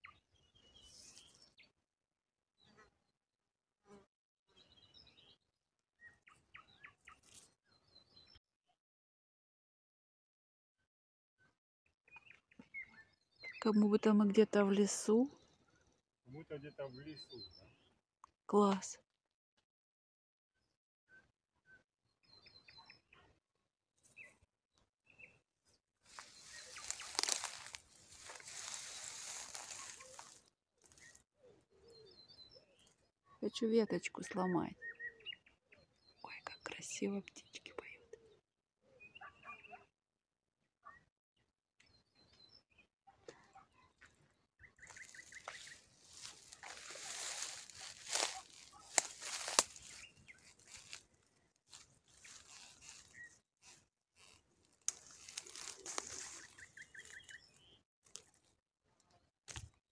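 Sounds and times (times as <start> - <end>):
songbirds chirping: 0.0 - 1.8, 4.5 - 8.4, 12.1 - 18.0, 20.6 - 23.4, 24.0 - 39.9, 41.8 - 58.4
branches rustling: 26.0 - 31.2, 44.8 - 58.4
twigs cracking: 26.1 - 31.2, 44.9 - 57.4, 58.0 - 58.4.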